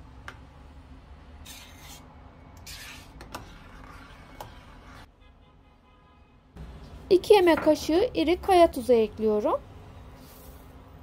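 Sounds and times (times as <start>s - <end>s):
spoon scraping a pot: 2.6s - 5.1s.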